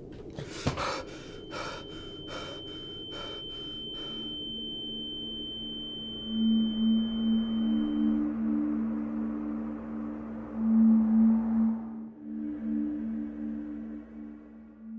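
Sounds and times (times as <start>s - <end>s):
low drone: 0.0s - 14.9s
man gasping and breathing hard: 0.4s - 4.2s
high-pitched ringing tone: 1.0s - 14.9s.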